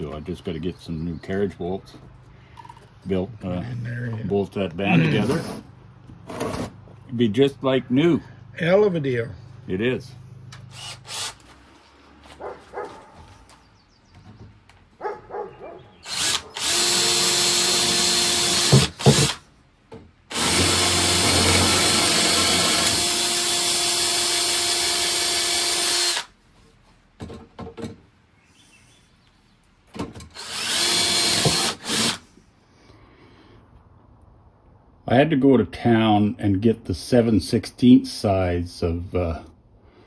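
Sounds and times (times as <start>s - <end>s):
cordless drill boring through steel: 10.7s - 11.4s, 16.0s - 19.4s, 20.3s - 26.3s, 30.4s - 32.2s.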